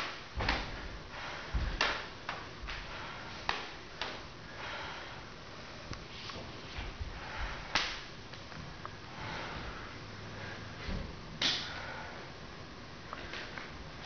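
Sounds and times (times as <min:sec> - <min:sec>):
short breaths: 0:04.5 - 0:05.3, 0:11.5 - 0:12.4.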